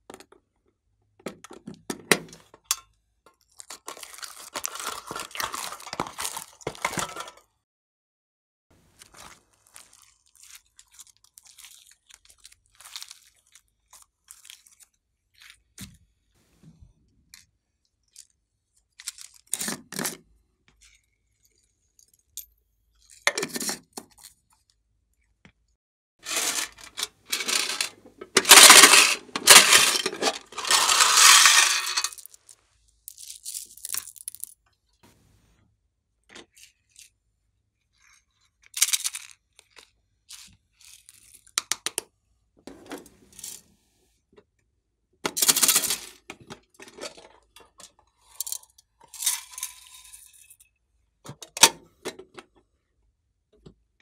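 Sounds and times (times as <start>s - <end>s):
sprinkles rattling in containers: 3.5s - 7.3s, 9.2s - 15.5s, 26.2s - 34.5s, 48.1s - 50.6s.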